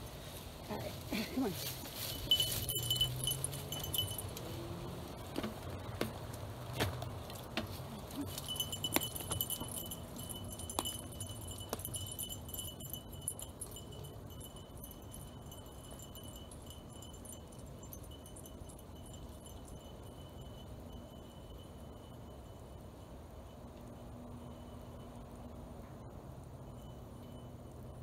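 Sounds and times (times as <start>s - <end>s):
metallic jingling: 1.5s - 5.9s, 7.0s - 22.3s
high ringing tone: 1.9s - 4.9s, 8.1s - 28.0s.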